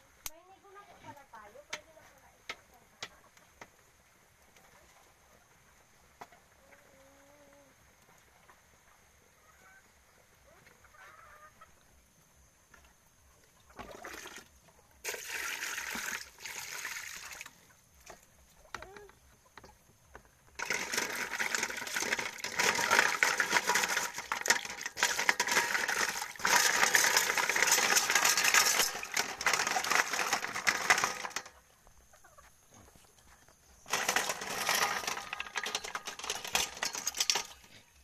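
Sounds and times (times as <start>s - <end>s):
water splashing in metal pot: 13.9s - 17.5s, 20.6s - 31.4s.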